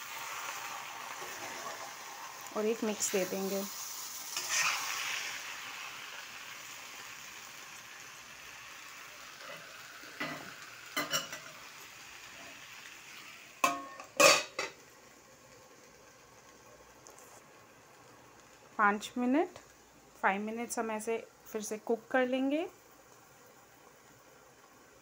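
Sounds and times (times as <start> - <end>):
vegetables sizzling in frying pan: 0.0 - 25.0
spatula scraping pan: 4.3 - 5.1
steel lid clanking on pan: 10.2 - 11.6, 13.6 - 14.8.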